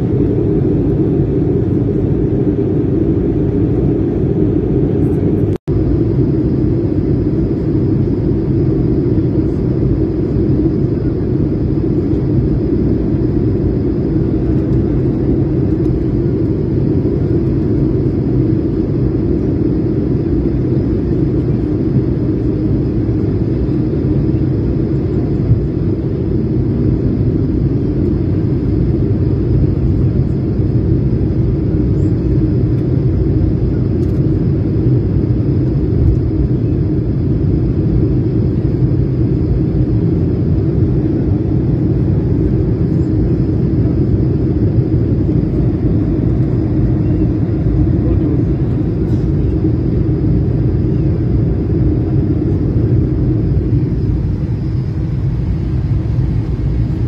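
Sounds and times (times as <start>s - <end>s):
airliner cabin rumble: 0.0s - 57.0s.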